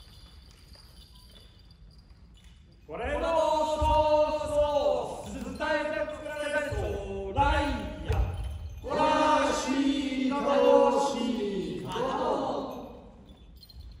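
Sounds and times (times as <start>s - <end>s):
voices chanting: 3.0s - 13.2s.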